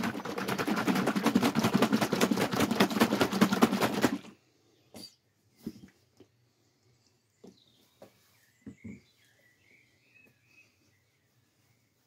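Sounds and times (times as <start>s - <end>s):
bottle shaken by hand: 0.0s - 4.3s.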